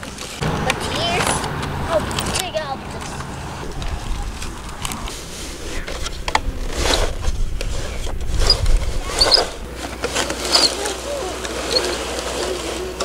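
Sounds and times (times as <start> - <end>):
wind rumble on microphone: 0.4 - 9.8
toy blade scraping sand: 4.8 - 13.0
child humming: 10.6 - 11.6.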